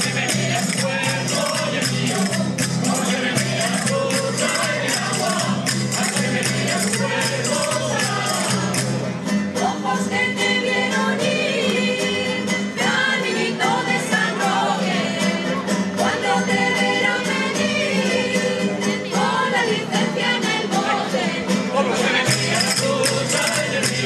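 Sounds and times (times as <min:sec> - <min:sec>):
tambourine shaking: 0:00.0 - 0:09.1, 0:22.3 - 0:24.0
women's choir singing: 0:00.0 - 0:24.0.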